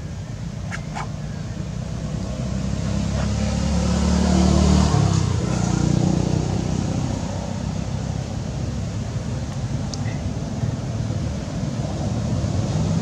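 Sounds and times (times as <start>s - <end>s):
vehicle engine passing: 0.6s - 9.4s.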